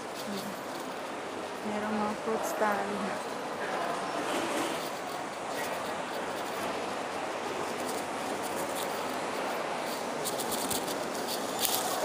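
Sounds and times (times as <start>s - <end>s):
shopping mall hubbub: 0.0s - 12.0s.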